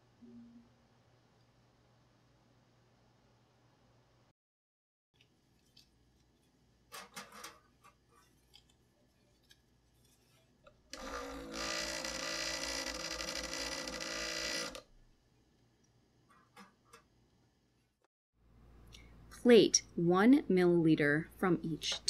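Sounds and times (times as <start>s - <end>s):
vortex mixer running: 11.0s - 14.8s.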